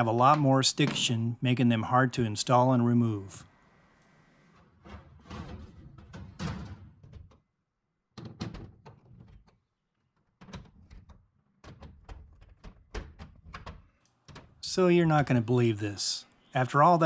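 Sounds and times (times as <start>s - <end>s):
sheet metal clunks and rattles: 4.8s - 7.4s.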